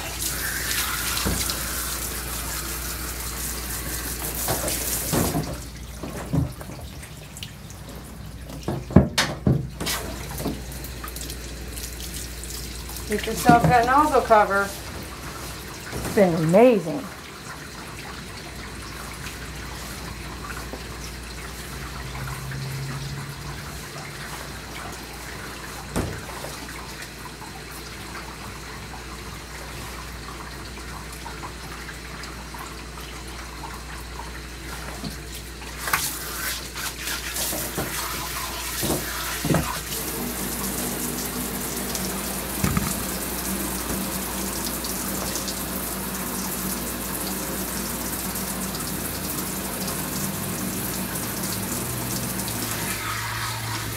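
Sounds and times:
water running in a tub: 0.0 - 53.9.

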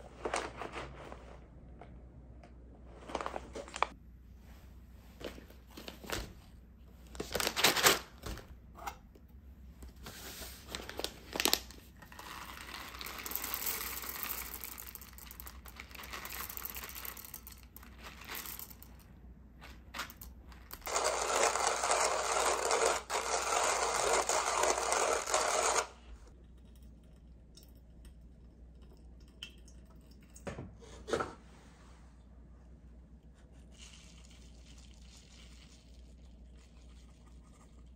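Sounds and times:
paper bag crinkling: 3.0 - 4.0, 10.6 - 18.8, 20.8 - 25.8
coffee beans pouring: 11.4 - 19.0, 20.0 - 26.0, 33.8 - 37.9
coffee grinder crunching beans: 11.4 - 19.0, 20.0 - 26.1.

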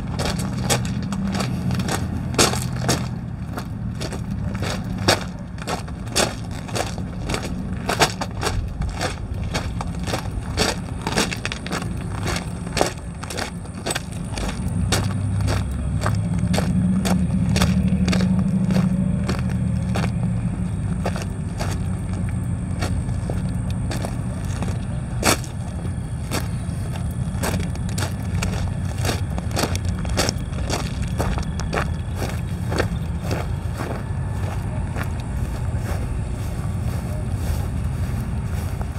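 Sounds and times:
diesel locomotives idling: 0.0 - 38.9
footsteps crunching on gravel: 0.0 - 38.9.

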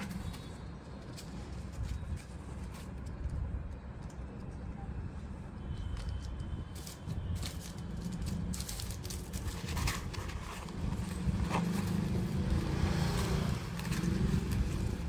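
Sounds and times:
fabric and plastic rustling: 0.0 - 3.3, 5.8 - 15.0.

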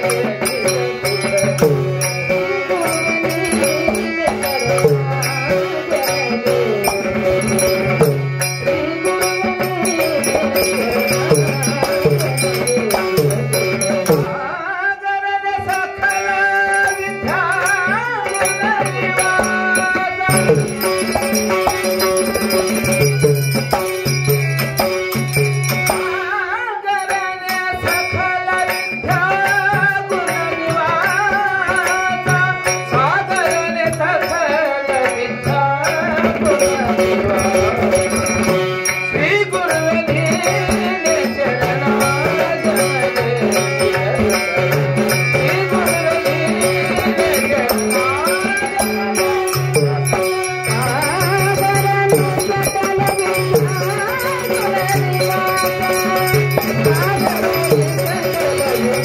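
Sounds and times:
harmonium chords: 0.0 - 59.0
man singing into microphone: 0.0 - 59.0
tabla rhythm: 0.0 - 59.0.

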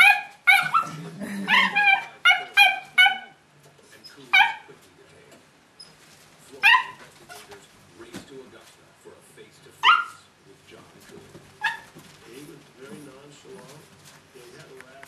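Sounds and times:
puppy yipping: 0.0 - 3.4, 4.3 - 4.7, 6.6 - 7.5, 9.8 - 10.2, 11.6 - 12.0.

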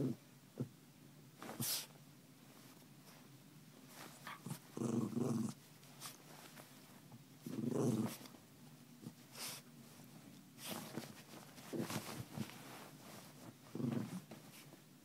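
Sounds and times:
bedding rustling: 1.3 - 15.0
small dog growling: 4.2 - 5.6, 7.4 - 8.3, 13.7 - 14.3.

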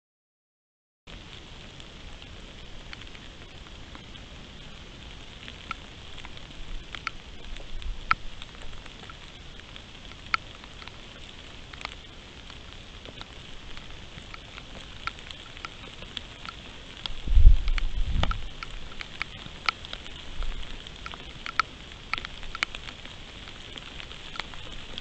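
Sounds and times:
sharp ticks of raindrops: 1.1 - 25.0
steady rain: 1.1 - 25.0
loud low rumbling thump: 17.3 - 18.5.

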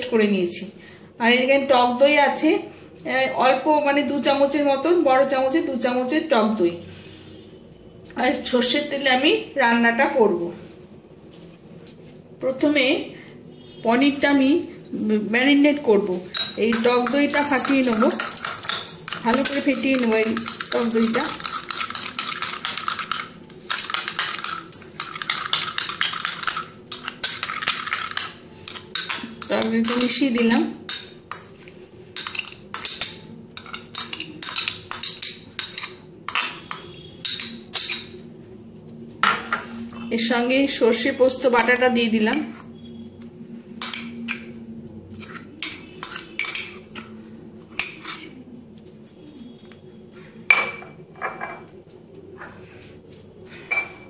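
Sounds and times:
spoon clinking and scraping glass bowl: 15.8 - 38.2, 41.5 - 42.6, 43.8 - 48.4, 53.7 - 54.0.

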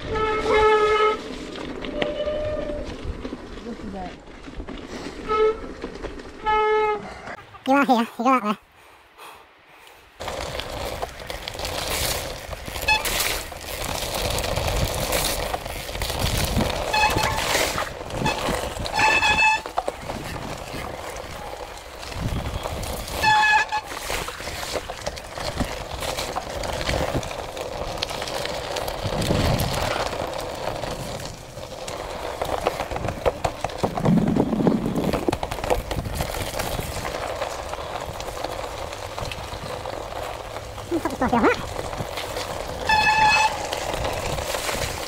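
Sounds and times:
bike rattling: 0.0 - 7.5, 10.1 - 45.0
tyres rumbling on gravel: 0.0 - 8.1, 10.0 - 45.0
disc brakes squealing: 12.7 - 13.4, 16.8 - 19.8, 42.8 - 44.2.

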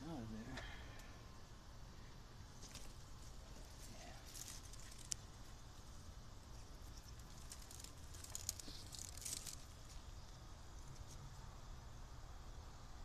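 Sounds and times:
low steady hum: 0.0 - 13.0
rustling of dry nest material: 2.5 - 11.3.

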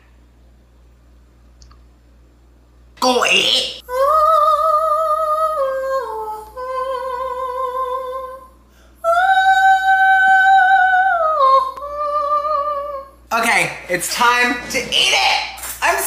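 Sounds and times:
person singing with vibrato: 3.4 - 13.3.

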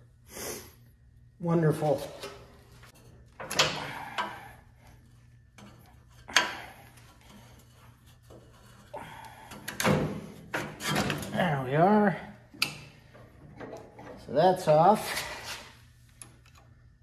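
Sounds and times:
metal clanks and scraping: 5.2 - 11.4.

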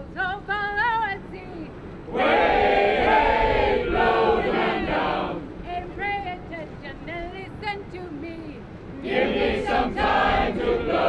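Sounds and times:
group singing chorus: 2.1 - 5.5, 8.9 - 11.0.

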